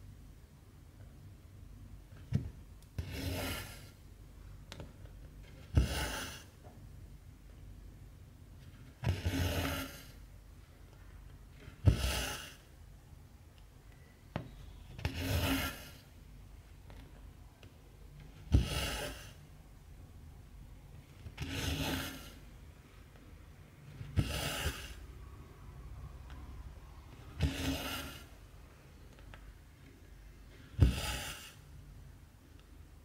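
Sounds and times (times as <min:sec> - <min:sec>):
thread rasping through fabric: 0:15.0 - 0:16.1, 0:23.9 - 0:25.0, 0:27.2 - 0:28.4, 0:30.8 - 0:31.6.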